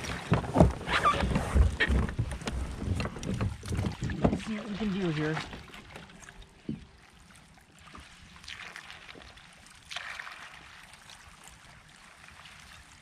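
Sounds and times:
small waves washing on pebbles: 0.0 - 6.5.

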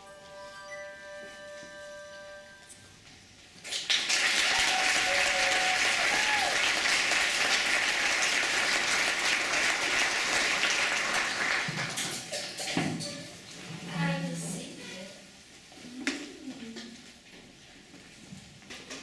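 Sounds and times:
audience applauding: 3.6 - 12.3.

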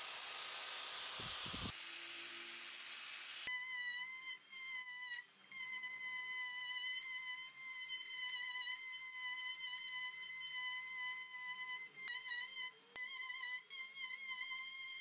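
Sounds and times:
rotary tool whining: 0.0 - 4.1.

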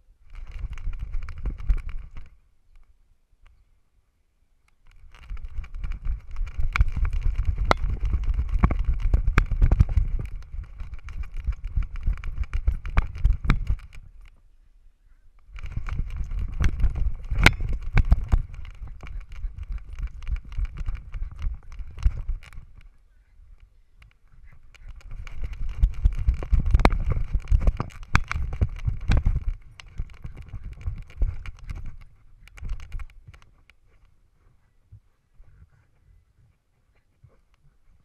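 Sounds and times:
wind buffeting camera: 0.0 - 2.4, 4.8 - 14.4, 15.4 - 38.0
camera rattling clicks and knocks: 0.3 - 2.4, 4.8 - 14.3, 15.4 - 23.0, 24.0 - 34.0.

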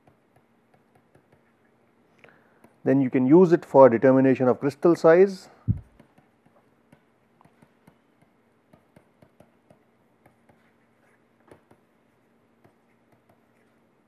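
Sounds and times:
stylus tapping on pen tablet: 0.0 - 1.5, 5.7 - 10.7, 11.4 - 11.9, 12.6 - 13.6.

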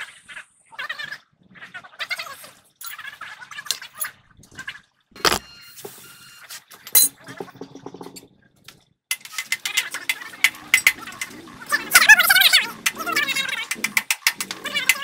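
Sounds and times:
metal clicks knocks and scraping: 5.2 - 5.4.

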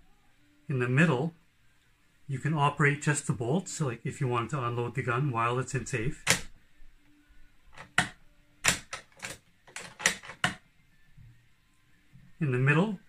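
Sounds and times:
rifle bolt and safety clicks: 6.2 - 6.5, 7.8 - 10.6.

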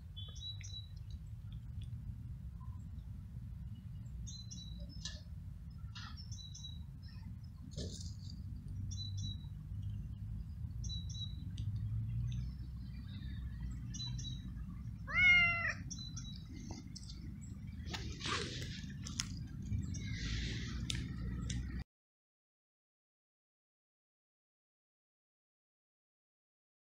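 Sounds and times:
low steady rumble: 0.0 - 21.8
cat meowing: 15.1 - 15.9.

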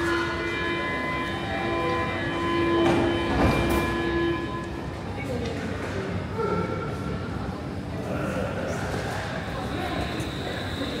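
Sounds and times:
train electrical whine: 0.0 - 5.2, 9.3 - 11.0.

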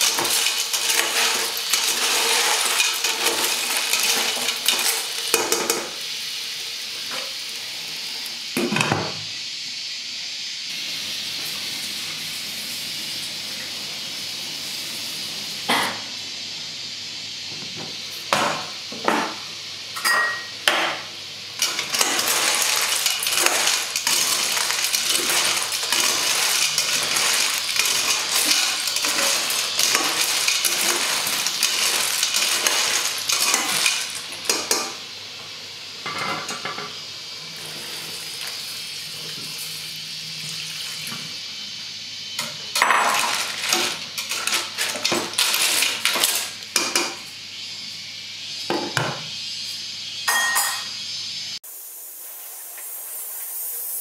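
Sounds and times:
snail shells clattering in a pot: 0.0 - 5.9, 21.6 - 35.0, 42.7 - 46.9.

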